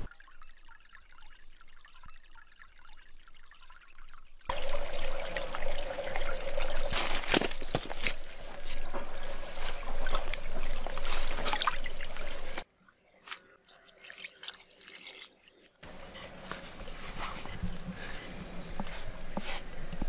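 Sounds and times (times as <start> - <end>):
stream running over stones: 0.0 - 12.7.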